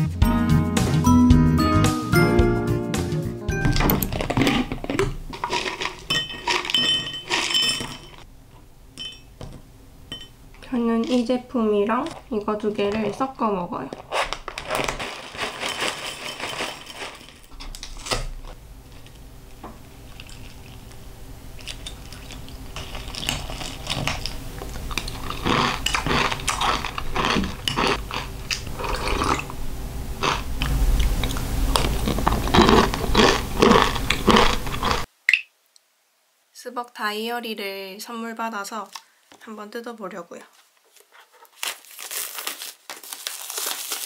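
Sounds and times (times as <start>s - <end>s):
crunchy food being chewed: 4.1s - 7.6s, 21.6s - 29.6s, 30.2s - 35.1s.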